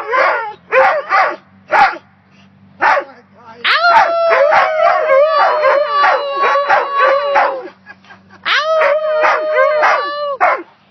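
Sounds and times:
dog long steady howl: 3.7 - 7.7, 8.5 - 10.4
short rising and falling howls: 3.7 - 7.7, 8.5 - 10.4.

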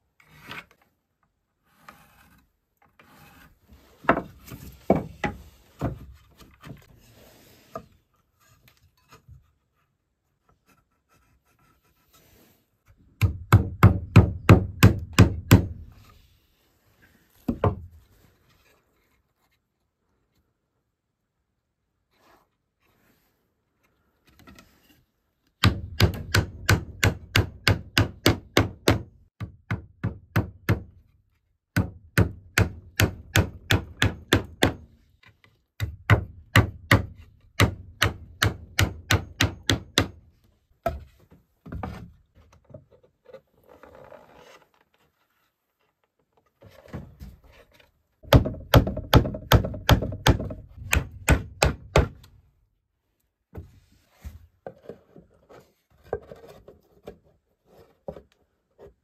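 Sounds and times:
hammer driving nails into wood: 13.2 - 15.9, 25.6 - 31.0, 31.8 - 34.9, 35.8 - 40.2, 48.2 - 52.3.

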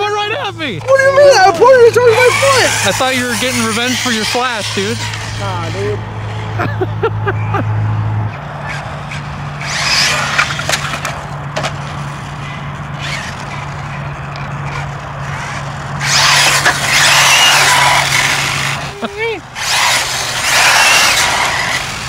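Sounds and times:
rc car tyre hiss and motor whine: 2.1 - 6.0, 9.6 - 10.6, 15.2 - 19.0, 19.6 - 22.0.

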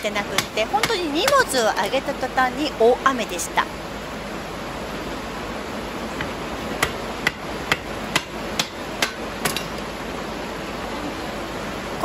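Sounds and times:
heavy rain hiss: 0.0 - 12.0
hammer striking log: 6.2 - 9.7.

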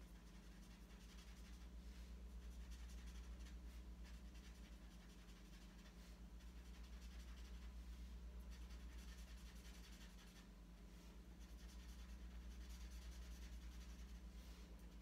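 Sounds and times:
marker scratching on paper: 0.0 - 15.0
steady low hum: 0.0 - 15.0.

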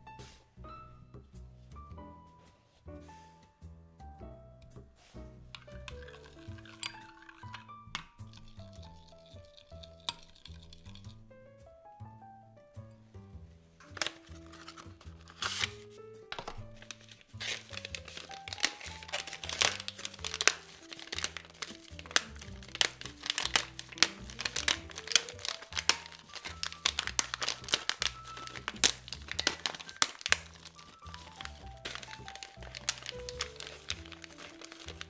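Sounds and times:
background music: 0.0 - 35.0
paper wrapper crinkling: 5.6 - 7.6, 13.8 - 35.0.

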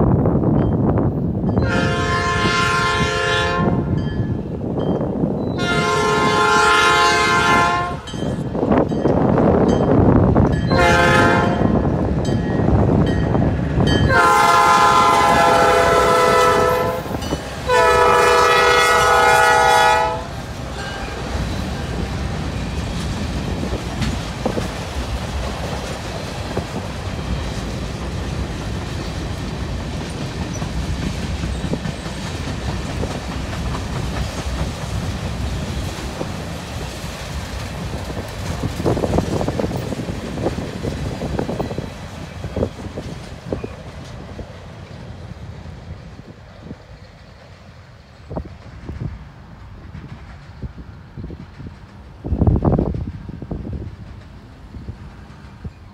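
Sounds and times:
diesel locomotive rumble: 0.0 - 55.9
locomotive air horn blasts: 1.6 - 4.0, 5.6 - 8.1, 10.7 - 11.8, 14.1 - 21.2
train wheels clattering over rail joints: 20.3 - 55.9.

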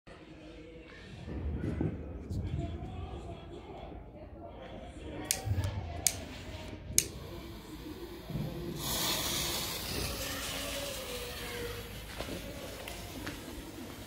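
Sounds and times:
firework fountain hissing: 7.4 - 13.2.

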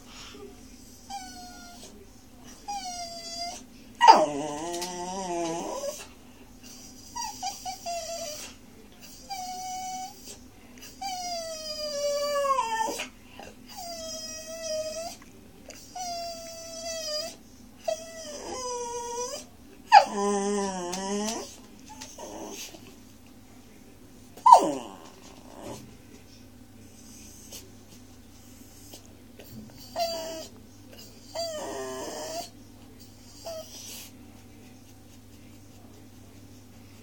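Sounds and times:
puppy whining and howling: 1.1 - 1.9, 2.6 - 6.1, 7.0 - 8.5, 9.2 - 10.4, 11.0 - 13.1, 13.7 - 15.2, 15.8 - 22.7, 24.4 - 25.8, 29.8 - 30.5, 31.2 - 32.5.

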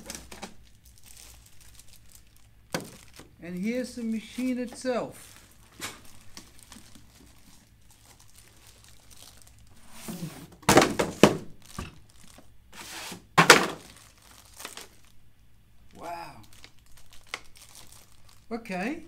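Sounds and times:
plastic crinkling: 0.0 - 15.2, 15.8 - 19.0
loud thunks: 10.6 - 12.0.

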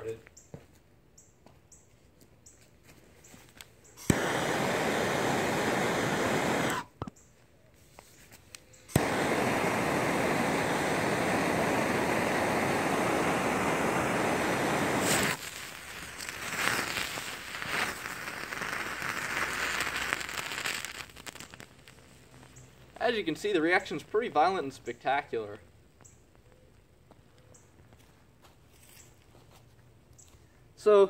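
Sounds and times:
gas torch hissing: 4.0 - 6.9, 8.8 - 24.8
gas torch ignition click: 4.0 - 6.9, 8.9 - 15.4
chemicals crackling and sputtering: 4.0 - 7.1, 8.8 - 25.7.

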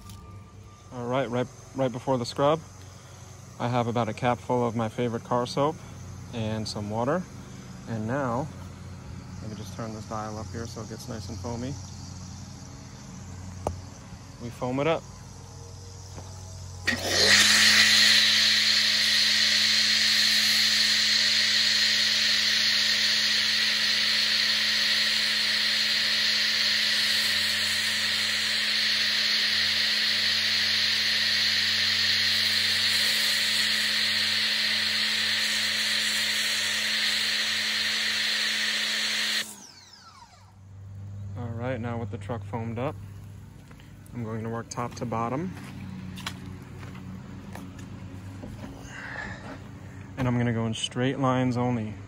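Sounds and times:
pressure washer motor hum: 16.1 - 40.7
foam spray hissing: 16.9 - 39.6.

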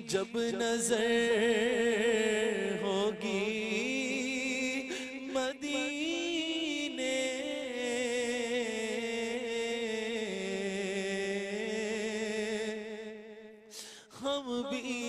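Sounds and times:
man singing: 0.0 - 13.2, 14.0 - 15.0.

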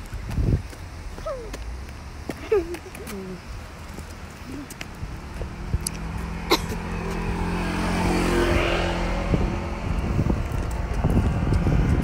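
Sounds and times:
wind rumble on microphone: 0.0 - 12.0
car driving past: 4.9 - 11.9.

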